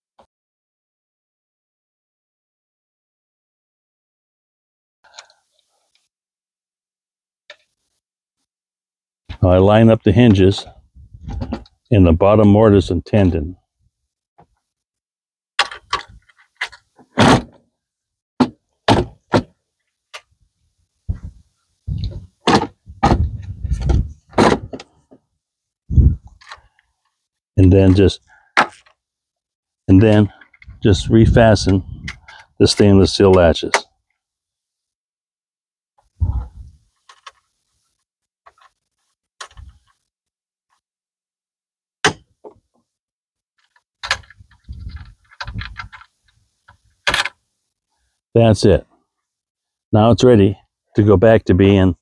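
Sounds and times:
metal latches snapping shut: 15.6 - 17.6
wooden panels knocking and clunking: 22.0 - 24.9.

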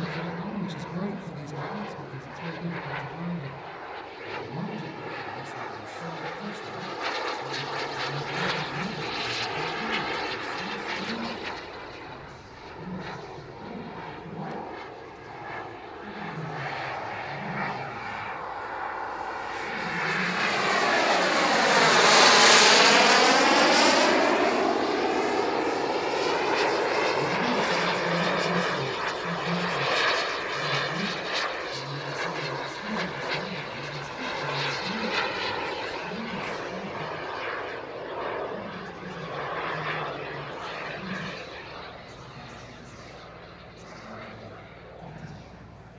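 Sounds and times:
model jet turbine whine: 0.0 - 45.9.

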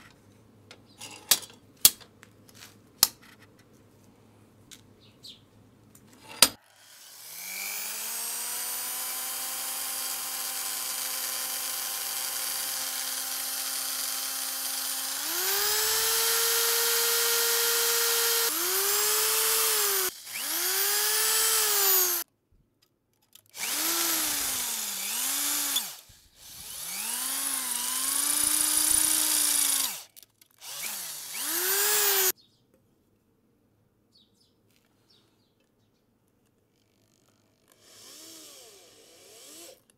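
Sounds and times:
power tool motor whining: 6.6 - 22.2, 23.5 - 32.3, 37.1 - 39.9.

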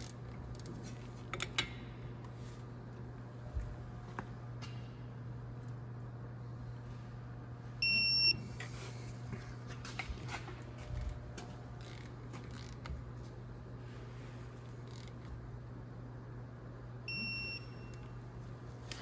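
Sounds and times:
steady low hum: 0.0 - 19.0
torque wrench beep: 7.8 - 8.4, 17.1 - 18.2.

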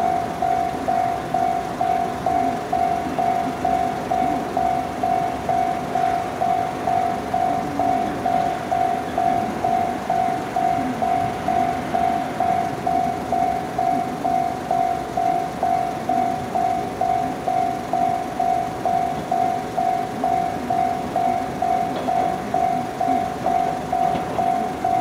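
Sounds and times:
level-crossing bell ringing: 0.0 - 25.0.

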